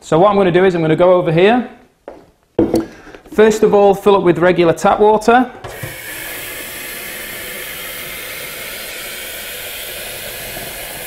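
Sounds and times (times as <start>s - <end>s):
tap water filling plastic jug: 5.6s - 11.0s.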